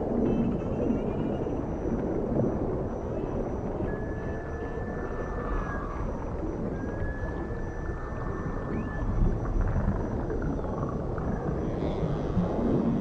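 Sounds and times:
low underwater rumble: 0:00.0 - 0:13.0
dolphin whistles: 0:03.8 - 0:06.2, 0:06.8 - 0:09.3.

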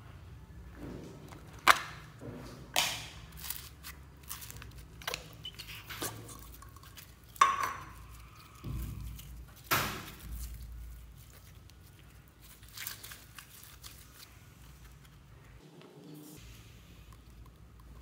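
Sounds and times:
slime squishing: 0:02.8 - 0:15.6.

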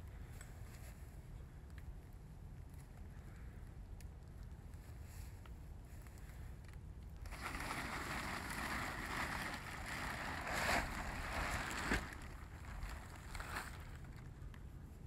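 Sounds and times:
plastic tarp rustling: 0:07.2 - 0:14.4
tarp snapping: 0:07.2 - 0:14.4.

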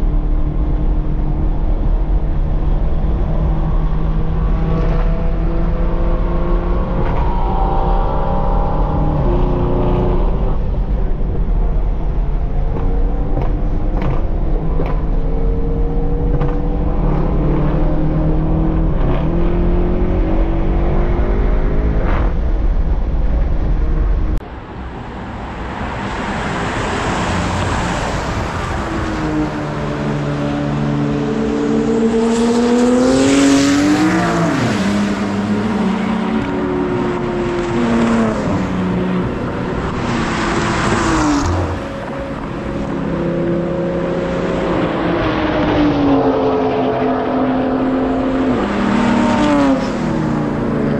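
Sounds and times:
race cars passing by: 0:24.4 - 0:50.9.

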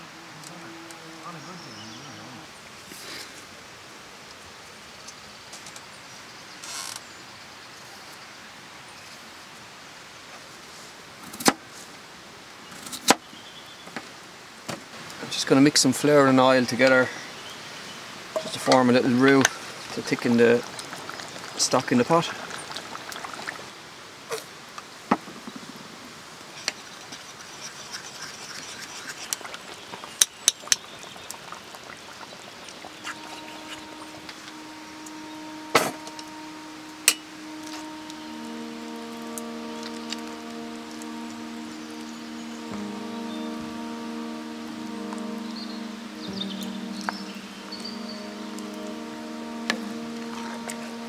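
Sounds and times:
water trickling: 0:14.9 - 0:24.3, 0:25.8 - 0:51.0
stream rushing: 0:31.0 - 0:51.0.

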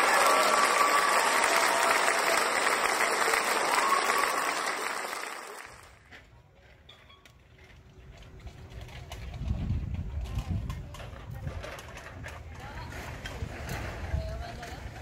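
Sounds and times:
crowd clapping and cheering: 0:00.0 - 0:06.1.

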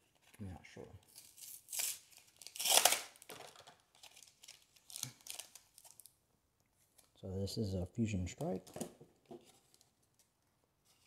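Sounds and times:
packaging ripping and crinkling: 0:01.1 - 0:06.1.

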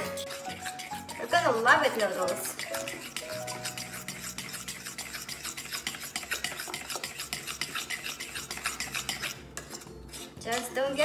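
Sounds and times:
utensil stirring batter in glass bowl: 0:00.0 - 0:11.0.

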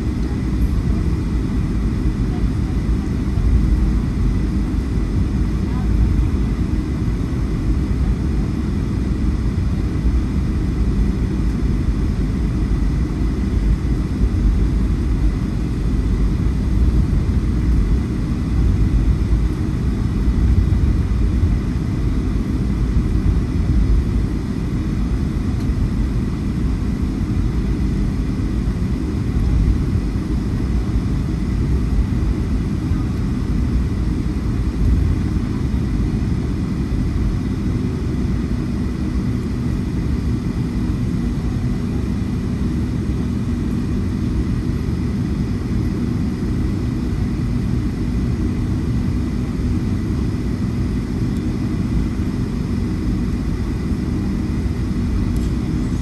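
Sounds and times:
jet engines rumbling: 0:00.0 - 0:56.0
faint high whine: 0:47.4 - 0:56.0.

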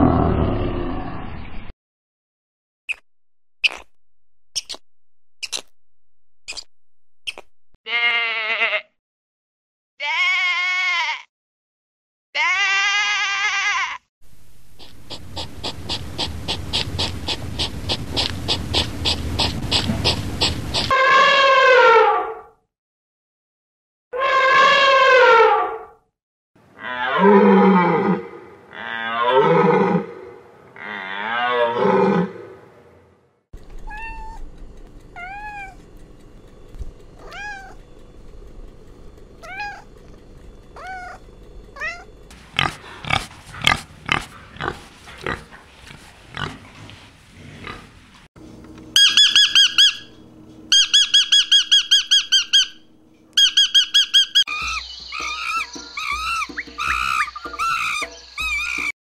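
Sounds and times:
loud drawn-out falling animal calls: 0:14.8 - 0:22.1, 0:49.0 - 0:59.0
kitten meowing softly: 0:33.9 - 0:34.4
lovebird shrill chirping: 0:49.0 - 0:52.8, 0:53.4 - 0:58.9.

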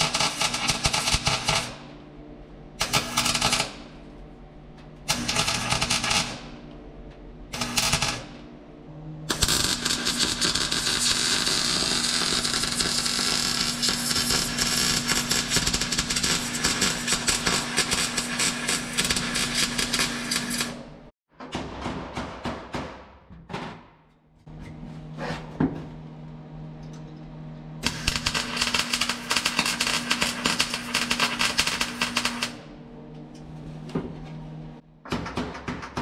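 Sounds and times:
welding arc crackling: 0:00.0 - 0:01.8, 0:02.8 - 0:03.8, 0:05.1 - 0:06.4, 0:07.6 - 0:08.3, 0:09.3 - 0:20.8, 0:27.8 - 0:32.6
steady hum: 0:00.0 - 0:17.9.

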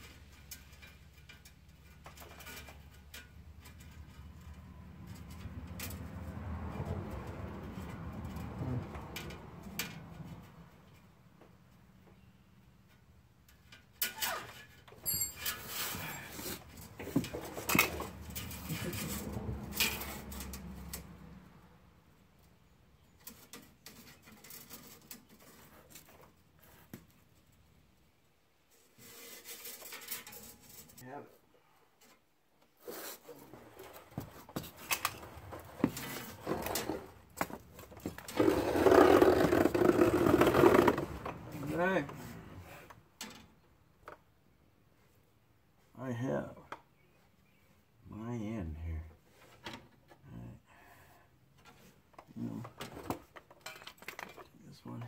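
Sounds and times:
metal tools clinking and scraping: 0:12.8 - 0:20.8, 0:29.1 - 0:31.0.

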